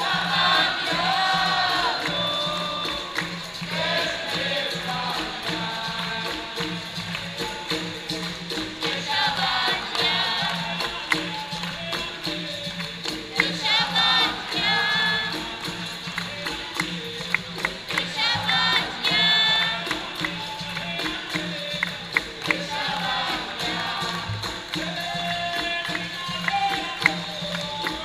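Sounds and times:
group of voices singing: 0.0s - 28.0s
percussion: 0.0s - 28.0s
tambourine jingling: 0.0s - 28.0s.

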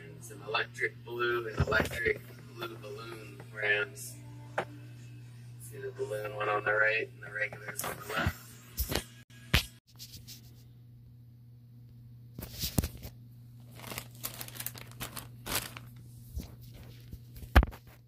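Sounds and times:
low steady hum: 0.0s - 8.7s, 10.0s - 18.0s
packaging pouches crinkling: 12.4s - 17.1s.

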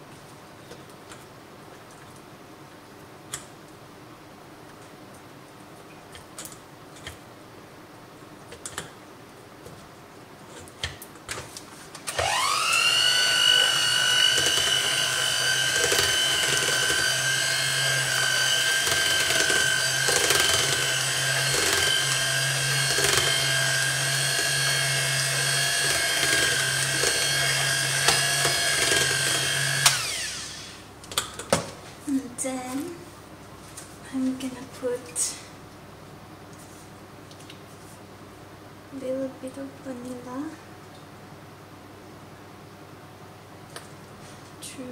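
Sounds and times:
electric mixer whine: 12.1s - 30.9s.

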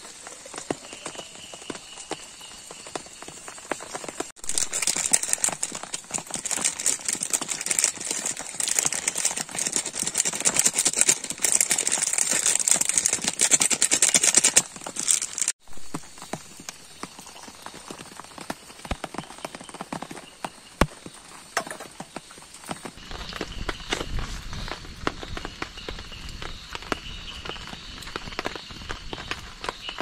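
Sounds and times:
heavy rain beating on a tent: 0.0s - 15.7s, 23.0s - 30.0s.

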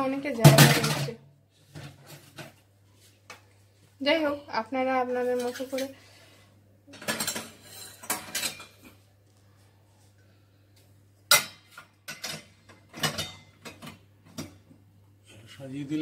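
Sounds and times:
metal dishes clattering: 0.4s - 1.2s, 5.2s - 6.0s, 6.9s - 9.0s, 11.3s - 14.6s.

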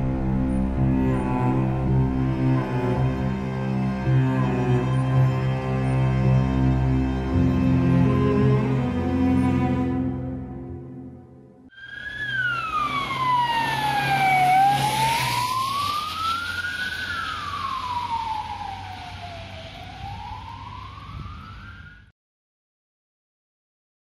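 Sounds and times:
road noise: 0.0s - 10.9s, 11.7s - 22.0s
ambulance siren wailing: 11.7s - 22.1s.

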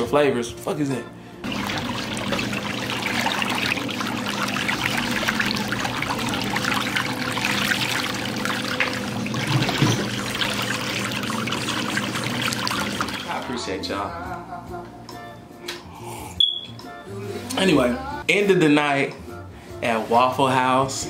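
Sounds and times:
whirlpool water churning: 1.4s - 13.5s.

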